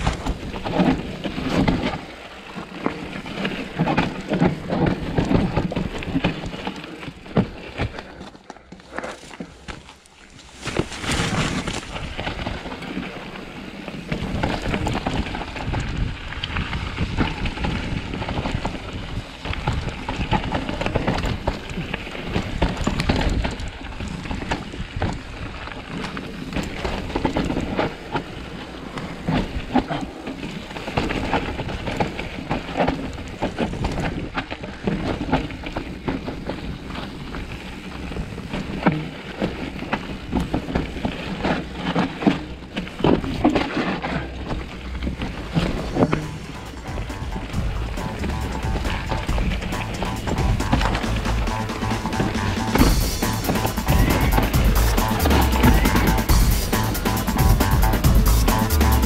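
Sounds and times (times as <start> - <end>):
bike rattling clicks and knocks: 0.0 - 59.0
tyre and wind noise: 0.0 - 59.0.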